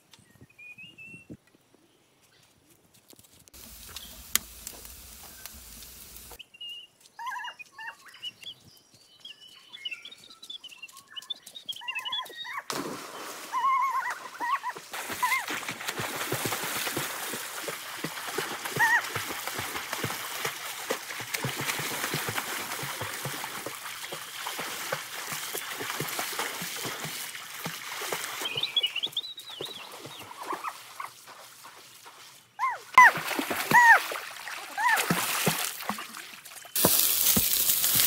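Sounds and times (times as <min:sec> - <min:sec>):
water splashing from swimming: 0:03.6 - 0:06.4, 0:12.7 - 0:38.0.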